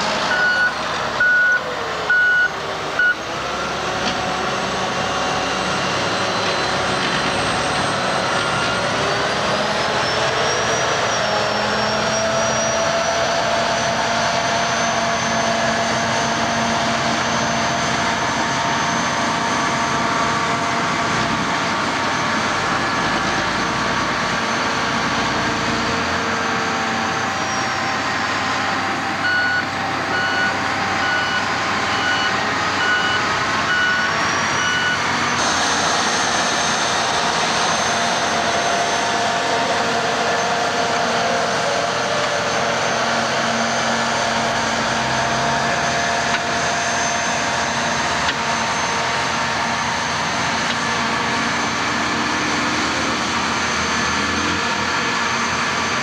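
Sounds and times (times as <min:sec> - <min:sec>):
heavy diesel engines running: 0:00.0 - 0:56.0
reversing alarm beeping: 0:00.3 - 0:03.3, 0:29.2 - 0:35.6.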